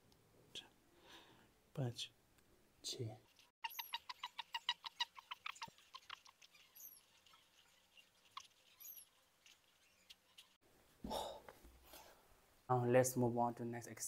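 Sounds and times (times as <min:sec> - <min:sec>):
small animal squeaky chirps: 0:03.6 - 0:10.6.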